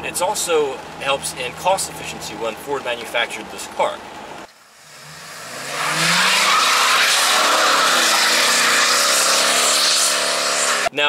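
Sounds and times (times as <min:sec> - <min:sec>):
car engine accelerating: 0:04.5 - 0:10.9
tyres hissing on wet road: 0:04.8 - 0:10.9.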